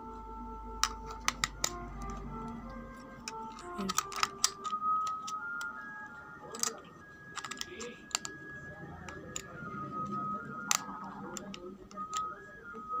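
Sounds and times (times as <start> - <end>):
faint background tune: 0.0 - 13.0
plastic clicks and taps: 0.8 - 5.7, 6.6 - 8.4, 10.6 - 12.3.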